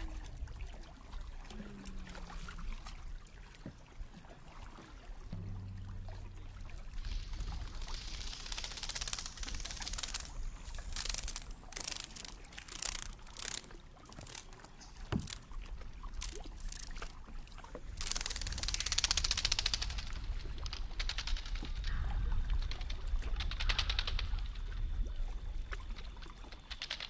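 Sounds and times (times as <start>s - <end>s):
water splashing against kayak hull: 0.0s - 27.0s
rapid fine clicks: 7.8s - 14.5s.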